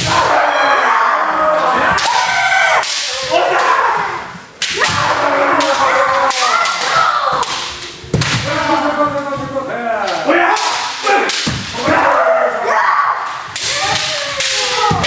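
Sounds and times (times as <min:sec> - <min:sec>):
people shouting: 0:00.0 - 0:15.0
bamboo swords striking: 0:01.8 - 0:03.8, 0:04.6 - 0:08.7, 0:10.0 - 0:12.4, 0:13.2 - 0:15.0.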